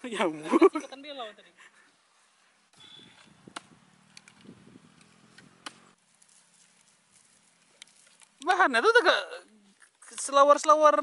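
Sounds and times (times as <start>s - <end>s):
clatter of dry wood handled: 6.2s - 8.4s.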